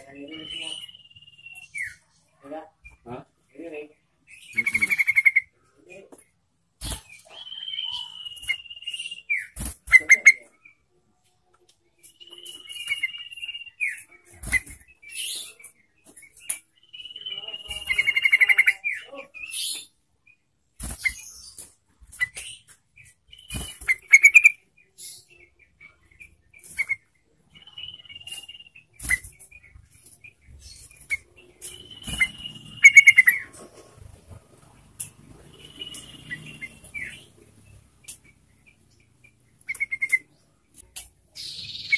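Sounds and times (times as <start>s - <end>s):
bulbul singing whistled phrases: 0.0s - 2.2s, 6.8s - 10.8s, 12.0s - 21.6s, 22.2s - 33.5s, 35.5s - 40.5s
sharp bird clicks: 38.0s - 41.2s.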